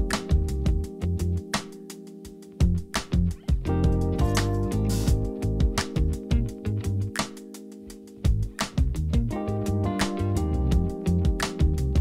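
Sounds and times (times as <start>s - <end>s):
background music with steady beat: 0.0s - 12.0s.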